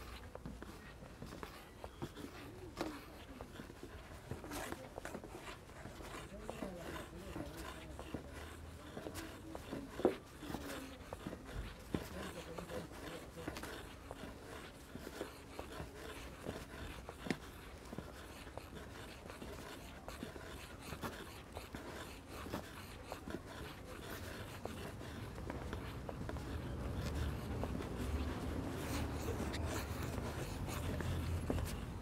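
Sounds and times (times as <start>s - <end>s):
scratchy rubbing: 0.0s - 32.0s
footsteps crunching on a path: 15.7s - 32.0s.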